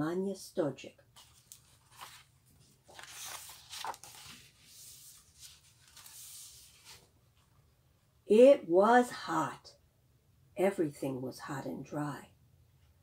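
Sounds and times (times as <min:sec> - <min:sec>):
book pages turning: 0:01.1 - 0:07.5.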